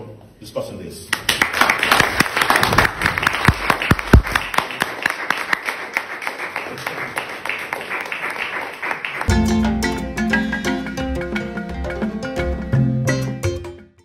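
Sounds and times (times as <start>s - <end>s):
audience applauding: 1.1s - 9.4s.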